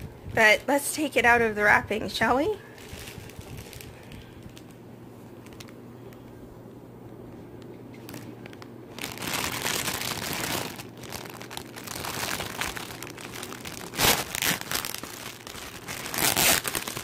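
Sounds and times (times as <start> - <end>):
wrapper rustling and crackling: 2.6 - 5.8, 7.9 - 17.0.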